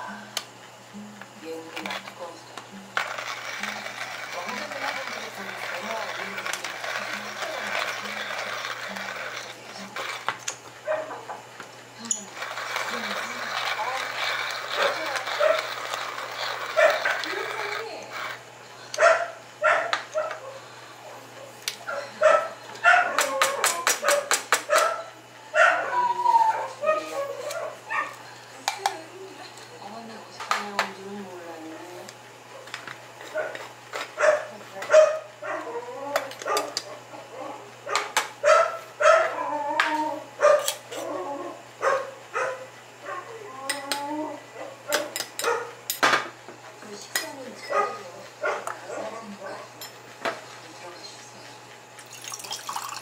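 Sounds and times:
dog barking and yipping: 10.9 - 11.2, 14.7 - 17.3, 19.0 - 20.6, 21.9 - 28.2, 34.2 - 35.8, 37.9 - 39.5, 40.4 - 40.8, 41.8 - 43.3, 44.6 - 45.8, 47.7 - 49.7.

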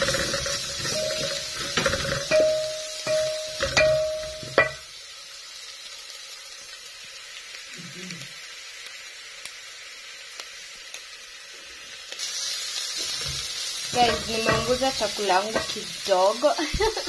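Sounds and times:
vegetables sizzling in a pan: 0.0 - 17.0.

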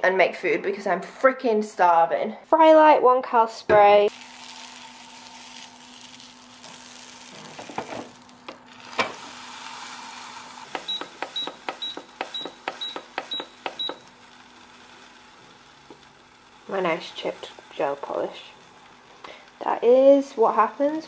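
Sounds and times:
appliance panel beeps: 10.8 - 14.1.

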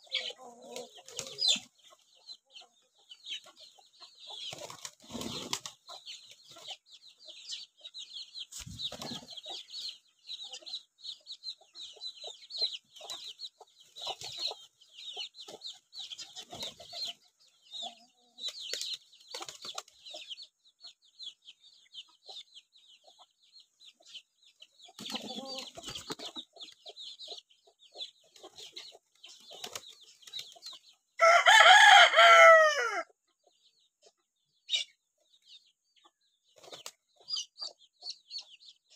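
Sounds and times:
chickens clucking: 0.0 - 38.9
rooster crowing: 31.2 - 33.1.

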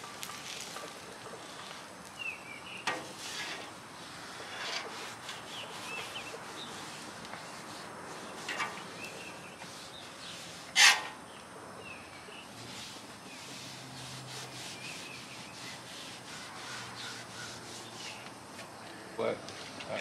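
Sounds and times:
paper towel rubbing on griddle: 2.8 - 11.2, 12.5 - 18.3.

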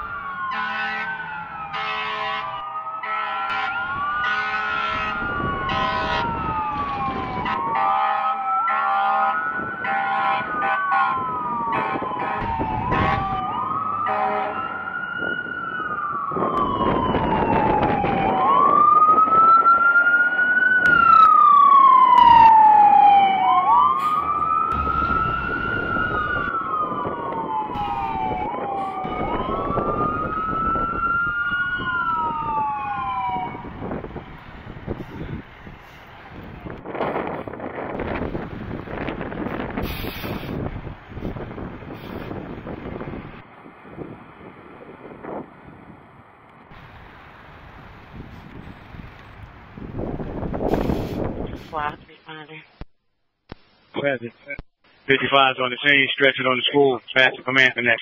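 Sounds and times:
fire engine siren wailing: 0.0 - 51.9
air horn blasts: 0.5 - 6.4, 7.4 - 13.4, 14.0 - 14.6
truck engine passing: 9.4 - 51.4.

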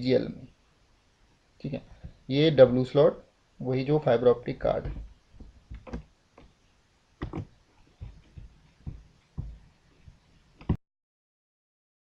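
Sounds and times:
desk handling thumps: 4.6 - 6.5, 7.2 - 10.8
computer mouse clicks: 5.5 - 6.5.

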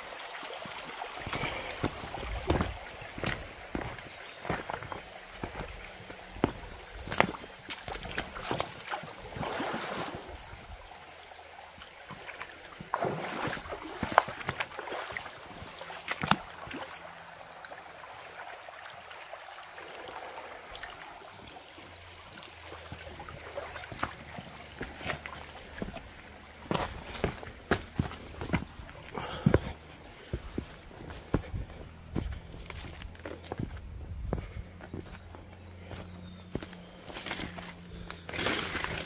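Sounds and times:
creek trickling: 0.0 - 39.0
footsteps on river stones: 1.2 - 9.7, 12.1 - 16.8, 22.8 - 39.0.

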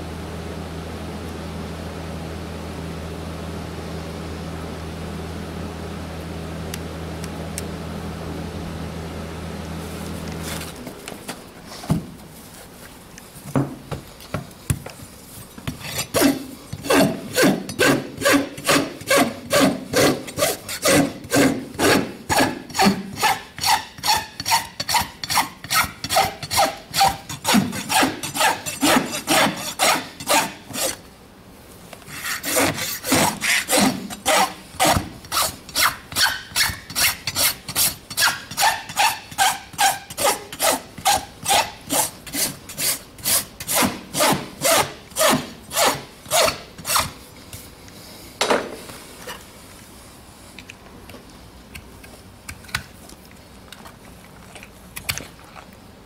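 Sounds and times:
rasp scraping a hoof: 15.6 - 31.1, 32.0 - 47.2.

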